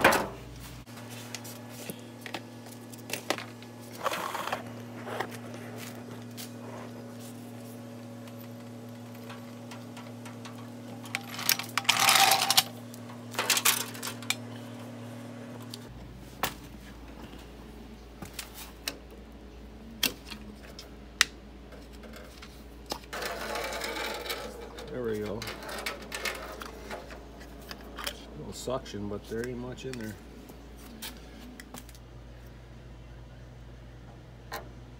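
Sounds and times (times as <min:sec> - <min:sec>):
scraping and rustling: 0:00.0 - 0:14.5, 0:21.8 - 0:28.3
steady electrical hum: 0:00.0 - 0:34.9.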